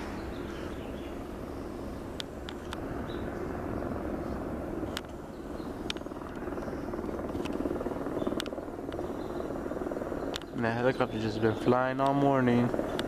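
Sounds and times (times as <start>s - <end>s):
helicopter rotor drone: 0.0s - 13.0s
sharp clicks: 8.3s - 9.1s, 10.3s - 10.6s.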